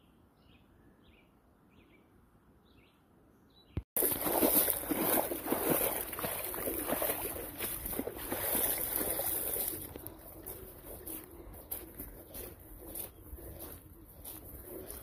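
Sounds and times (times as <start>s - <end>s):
footsteps splashing through water: 4.0s - 15.0s
wet grass brushing: 4.0s - 15.0s.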